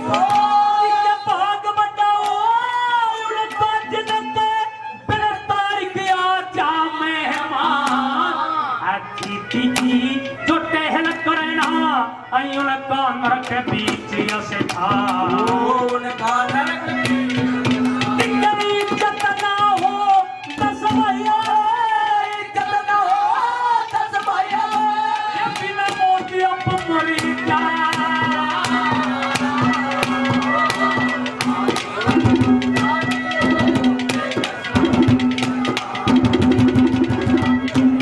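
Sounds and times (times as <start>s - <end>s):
man singing: 0.0s - 34.9s
hand drum strokes: 23.9s - 38.0s.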